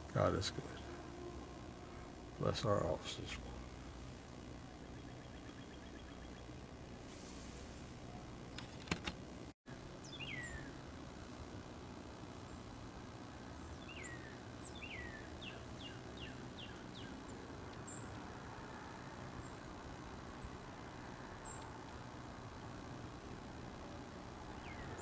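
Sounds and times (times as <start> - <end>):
low steady background hum: 0.0 - 25.0
small songbirds chirping: 4.8 - 6.5, 10.0 - 10.8, 13.4 - 18.2, 19.3 - 21.7, 24.5 - 25.0
sharp clicks: 8.5 - 9.2.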